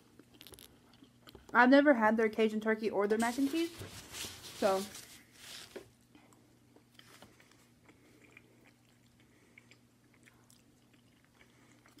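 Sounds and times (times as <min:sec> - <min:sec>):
faint chewing: 0:00.0 - 0:01.6, 0:05.7 - 0:12.0.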